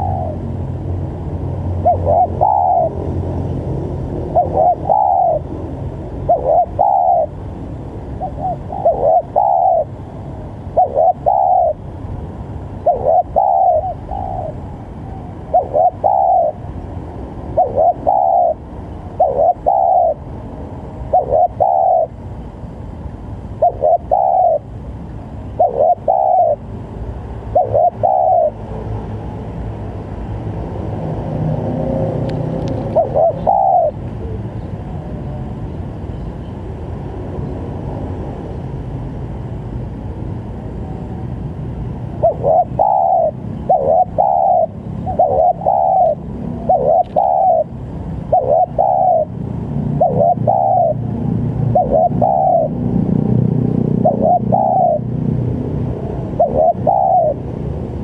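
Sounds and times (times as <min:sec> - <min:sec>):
dove cooing: 0:00.0 - 0:00.8, 0:01.7 - 0:03.2, 0:03.8 - 0:07.4, 0:08.2 - 0:11.9, 0:12.8 - 0:16.8, 0:17.5 - 0:20.3, 0:21.1 - 0:22.2, 0:23.6 - 0:24.7, 0:25.5 - 0:26.7, 0:27.5 - 0:28.6, 0:32.8 - 0:35.4, 0:42.1 - 0:53.1, 0:53.9 - 0:55.1, 0:56.0 - 0:57.5.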